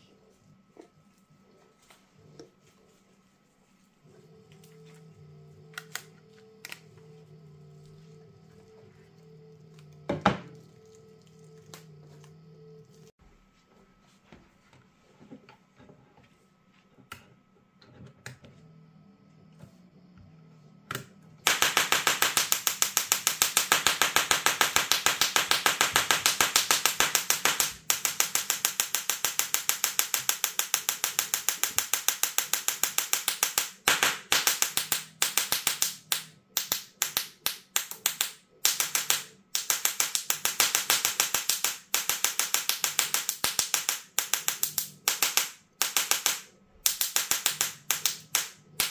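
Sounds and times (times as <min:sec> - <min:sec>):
tesla coil crackling snaps: 0:21.4 - 0:48.9.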